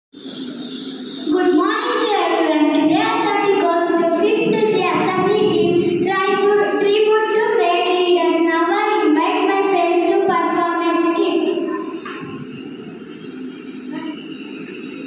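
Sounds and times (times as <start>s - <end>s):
girl singing into a microphone: 1.3s - 12.4s.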